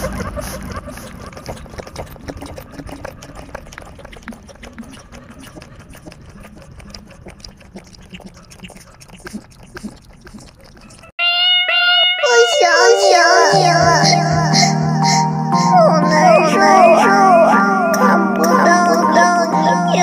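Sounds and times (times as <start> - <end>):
puppy lapping from bowl: 0.0 - 11.2.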